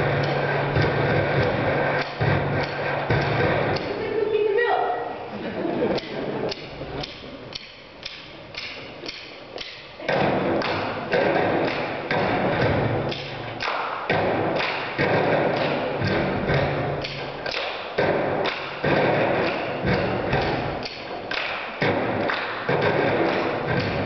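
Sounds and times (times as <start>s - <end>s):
feet stomping: 0.0s - 4.0s, 8.6s - 24.0s
hands clapping and slapping: 5.9s - 12.4s, 13.1s - 24.0s.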